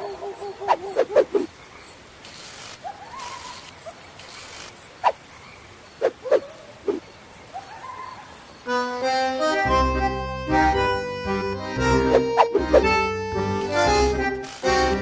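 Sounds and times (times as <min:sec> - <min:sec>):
faint high insect hiss: 0:00.0 - 0:09.3.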